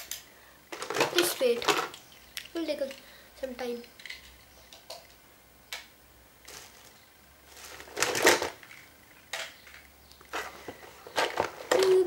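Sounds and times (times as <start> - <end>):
rustling clatter: 0.7 - 2.0, 6.5 - 8.9, 9.6 - 12.0.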